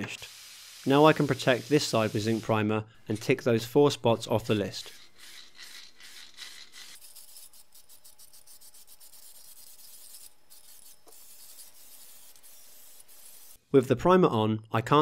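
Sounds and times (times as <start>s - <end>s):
aerosol can spraying: 5.2s - 13.6s.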